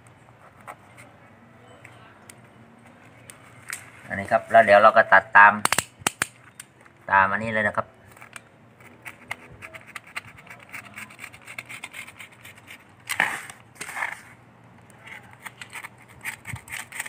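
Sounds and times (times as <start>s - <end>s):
knife cutting cardboard: 8.8s - 14.4s, 15.2s - 17.0s.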